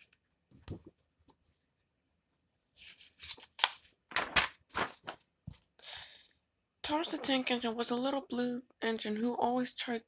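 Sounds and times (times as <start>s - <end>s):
book pages rustling: 0.0s - 1.5s, 2.7s - 5.8s.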